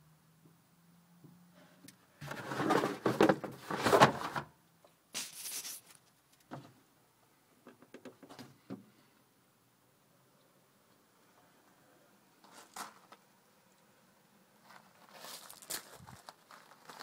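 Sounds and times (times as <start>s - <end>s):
short hiss: 5.1s - 6.0s.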